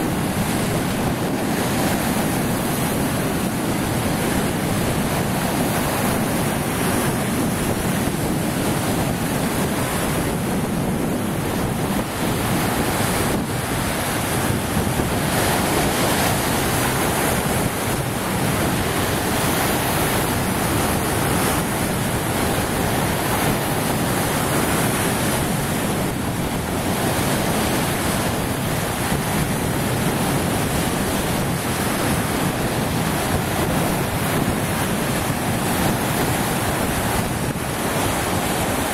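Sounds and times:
waves washing over rock: 0:00.0 - 0:38.9
wind buffeting microphone: 0:00.0 - 0:38.9.

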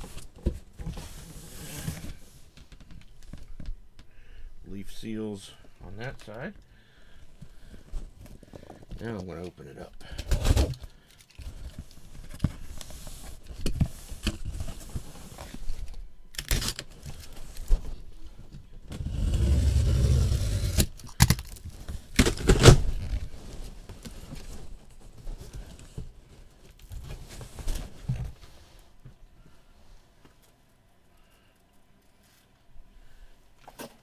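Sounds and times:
cardboard box scraping on table: 0:19.0 - 0:20.9.

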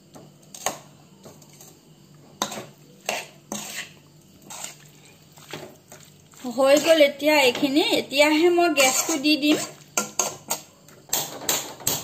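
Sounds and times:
metal spoon scraping metal pan: 0:02.4 - 0:04.9, 0:06.6 - 0:07.1, 0:08.6 - 0:11.2.

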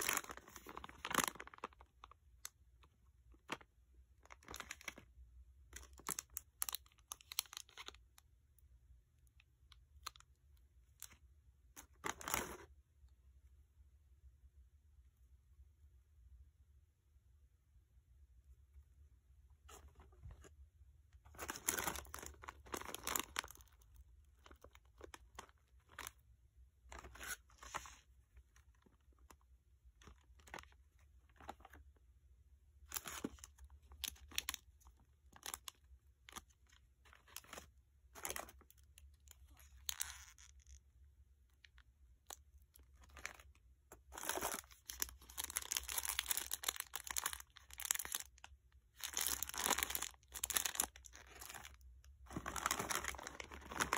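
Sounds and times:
plastic wrappers crinkling: 0:00.0 - 0:02.6, 0:03.3 - 0:05.1, 0:05.8 - 0:08.0, 0:11.8 - 0:12.7, 0:21.3 - 0:26.2, 0:32.9 - 0:40.8, 0:41.7 - 0:53.9.

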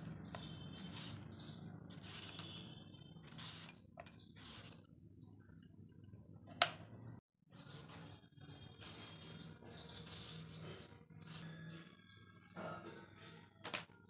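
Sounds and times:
peeler scraping radish: 0:00.3 - 0:04.8, 0:07.5 - 0:11.6.

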